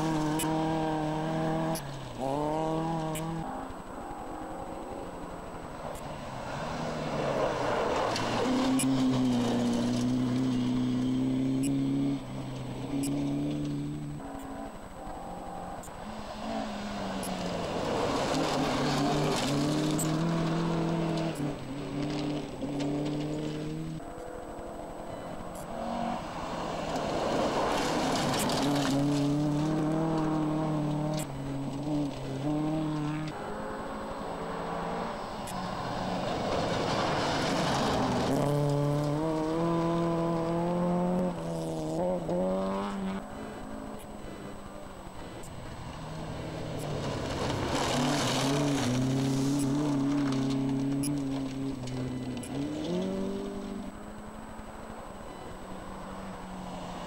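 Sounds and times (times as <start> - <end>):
rally car engine passing: 0.0 - 57.0
tyres on gravel: 0.0 - 57.0
tyres hissing on gravel: 46.8 - 50.7.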